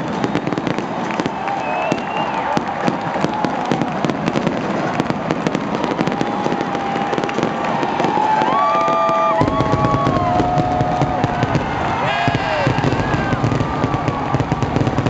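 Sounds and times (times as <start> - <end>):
whistling tones: 0.0 - 2.6
crowd cheering: 0.0 - 15.0
fireworks crackling and popping: 0.0 - 15.0.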